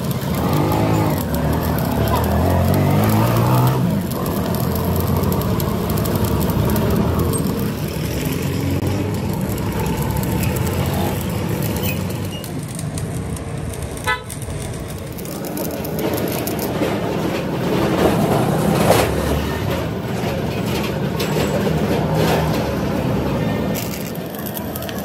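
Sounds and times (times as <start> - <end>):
arc welding crackling: 0.0 - 25.0
vehicle horn toot: 14.0 - 14.4.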